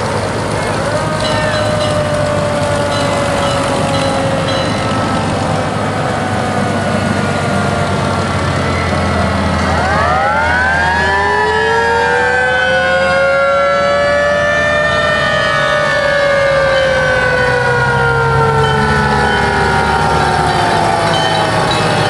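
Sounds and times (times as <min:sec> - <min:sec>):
truck engine running low: 0:00.0 - 0:22.0.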